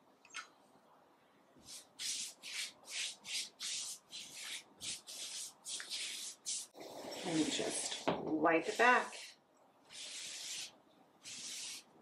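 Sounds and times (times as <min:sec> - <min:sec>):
paintbrush strokes on wood: 0:01.7 - 0:09.3.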